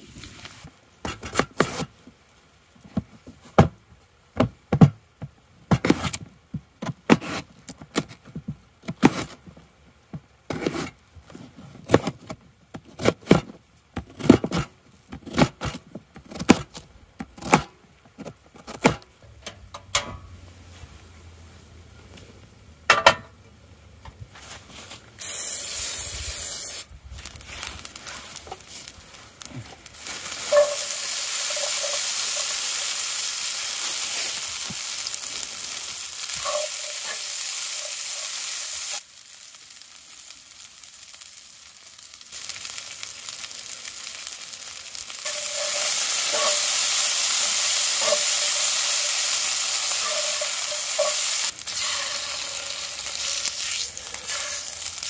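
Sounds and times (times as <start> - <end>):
loud steady hiss: 25.0 - 43.9, 44.6 - 55.0.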